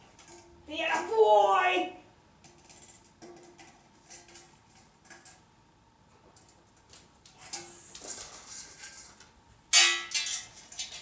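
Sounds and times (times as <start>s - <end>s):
metal dish ringing clang: 9.7s - 10.5s.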